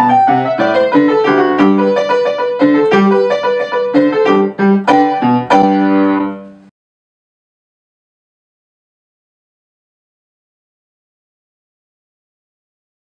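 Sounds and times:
upright piano playing: 0:00.0 - 0:06.7.

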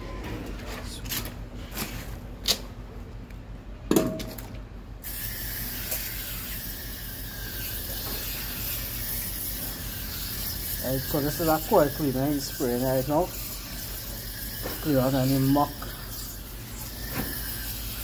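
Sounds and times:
sprayer hissing: 0:05.0 - 0:18.0.

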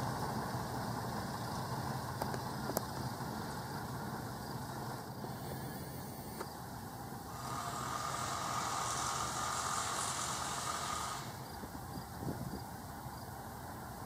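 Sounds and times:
diesel locomotive rumble: 0:00.0 - 0:14.0
hiss and high whine: 0:03.0 - 0:14.0.

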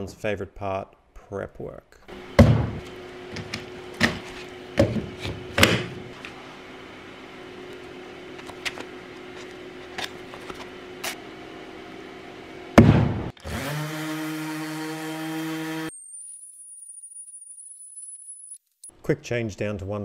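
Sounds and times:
orbital sander running on wood: 0:13.4 - 0:15.9.

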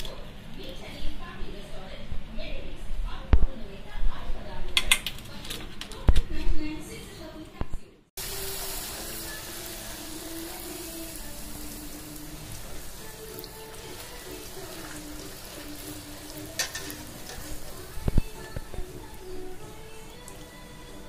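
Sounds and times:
oil bubbling and sizzling: 0:08.2 - 0:21.0.

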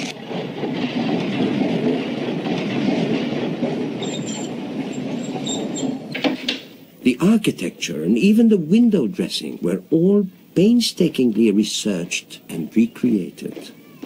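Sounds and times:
tram wheels clattering on rails: 0:00.0 - 0:14.0
high wheel squeal: 0:04.0 - 0:06.2.

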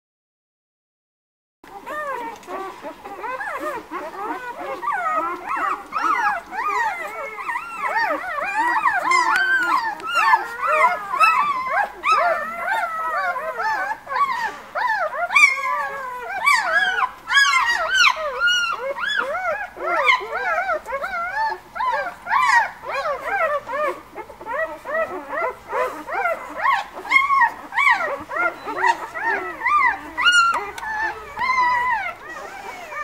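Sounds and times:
puppies squealing and whimpering: 0:01.7 - 0:33.0.

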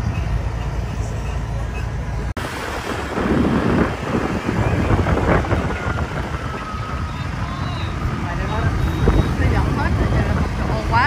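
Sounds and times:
low rumble of road traffic: 0:00.0 - 0:11.0
wind buffeting microphone: 0:02.2 - 0:11.0.

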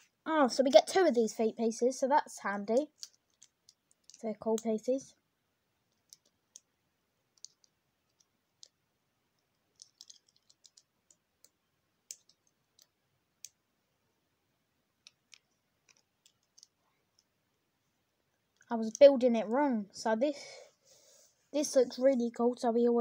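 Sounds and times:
plastic bricks clicking: 0:02.8 - 0:04.7, 0:05.9 - 0:06.7, 0:07.4 - 0:08.8, 0:09.4 - 0:13.6, 0:15.0 - 0:17.3.

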